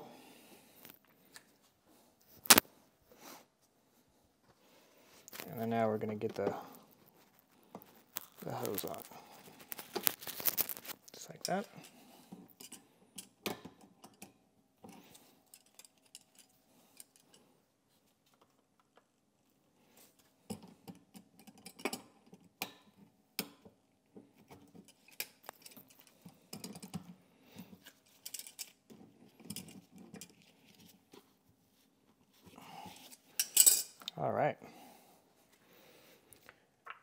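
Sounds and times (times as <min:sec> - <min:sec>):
pliers clicking and scraping: 0:24.8 - 0:27.0.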